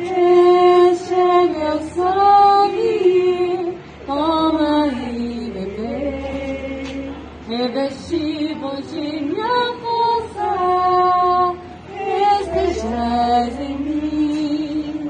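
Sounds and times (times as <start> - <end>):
woman singing a slow hymn: 0.0 - 15.0.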